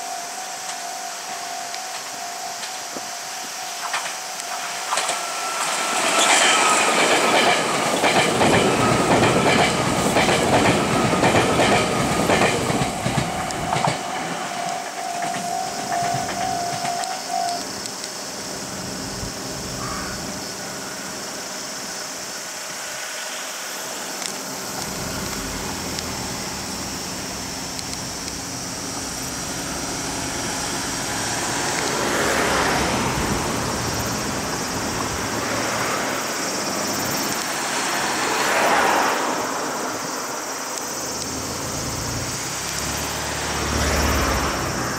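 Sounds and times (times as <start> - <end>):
level crossing warning bell: 0.0 - 12.2, 13.0 - 17.7
cars driving past: 23.4 - 44.9.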